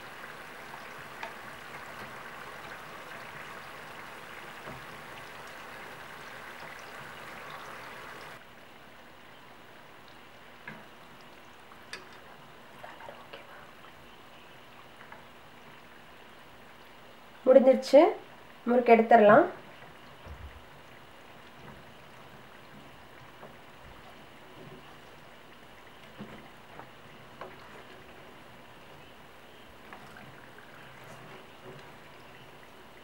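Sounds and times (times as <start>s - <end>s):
deep-frying sizzle in oil: 0.0s - 12.8s.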